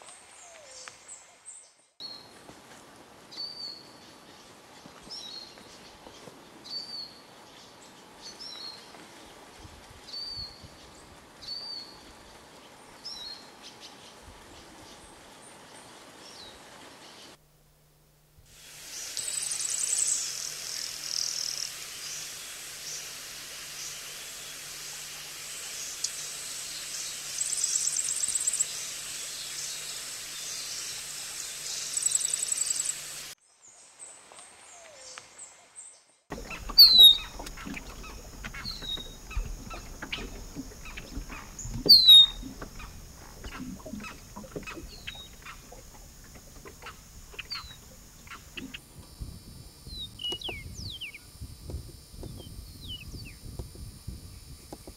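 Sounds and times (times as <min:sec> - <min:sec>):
bird buzzy trill: 0:36.3 - 0:48.8
faint bird chips: 0:36.3 - 0:48.8
bird down-slurred whistles: 0:36.5 - 0:45.6.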